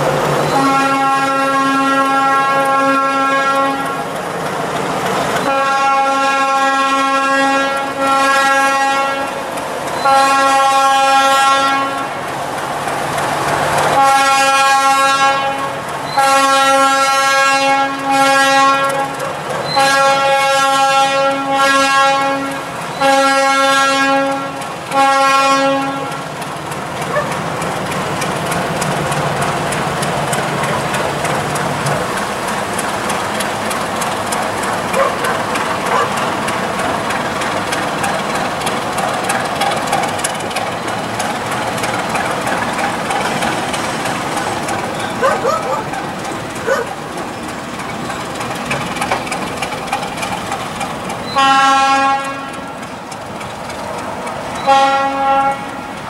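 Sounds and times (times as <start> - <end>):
railcar wheel clatter: 0.0 - 56.0
train horn blasts: 0.4 - 4.2, 5.4 - 12.3, 13.9 - 26.3, 51.2 - 52.8, 54.6 - 56.0.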